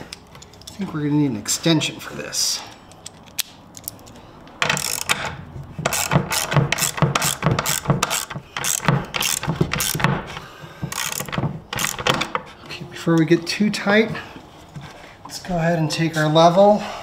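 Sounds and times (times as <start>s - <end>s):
ratchet wrench clicking: 2.9s - 10.1s, 10.9s - 12.2s.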